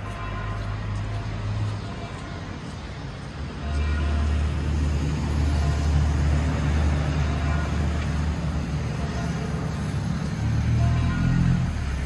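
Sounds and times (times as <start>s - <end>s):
street traffic noise: 0.0s - 12.0s
vehicle engine rumbling: 0.0s - 12.0s.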